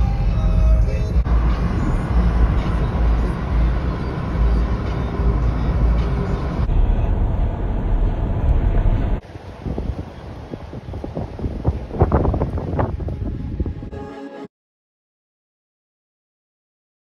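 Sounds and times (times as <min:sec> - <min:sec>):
wind buffeting microphone: 0:01.2 - 0:13.9
ocean surf breaking: 0:08.9 - 0:12.9.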